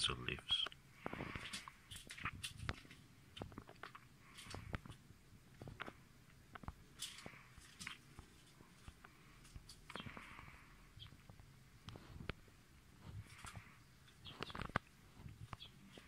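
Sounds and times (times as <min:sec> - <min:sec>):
soft rustles: 0:01.0 - 0:16.0.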